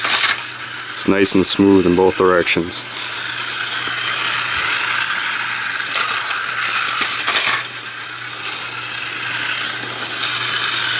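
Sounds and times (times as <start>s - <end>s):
toy car motor whirring: 0.0s - 10.9s
wheels rattling over plastic track: 0.0s - 10.9s.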